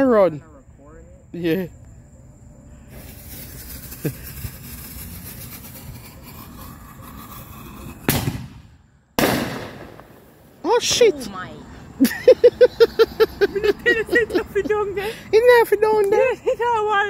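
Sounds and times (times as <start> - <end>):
firework hissing and spitting: 2.9 - 10.5
firework shell launching: 2.9 - 10.6.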